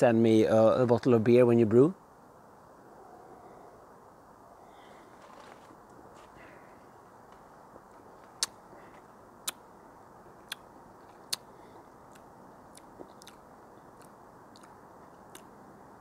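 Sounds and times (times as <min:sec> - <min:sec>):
low steady hiss: 0:00.0 - 0:16.0
mouth smacks: 0:08.4 - 0:08.6, 0:09.4 - 0:09.7, 0:10.4 - 0:11.5, 0:12.1 - 0:15.5.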